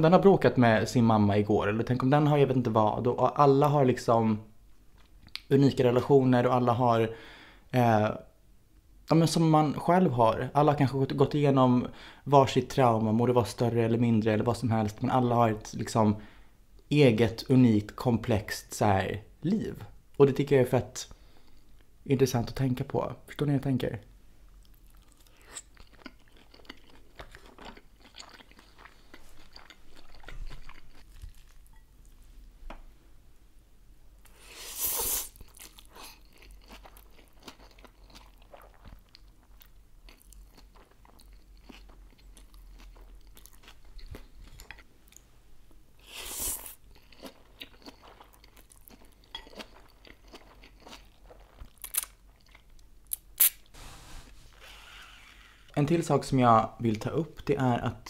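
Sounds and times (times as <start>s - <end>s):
dumpling being chewed: 24.5s - 32.2s, 35.3s - 45.3s, 46.1s - 53.5s.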